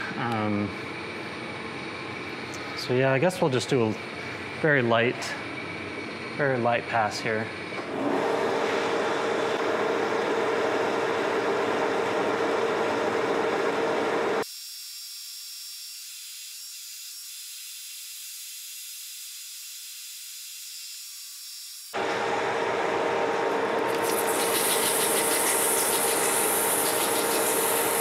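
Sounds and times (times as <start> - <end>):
metal lathe running: 3.8 - 14.4, 22.0 - 28.0.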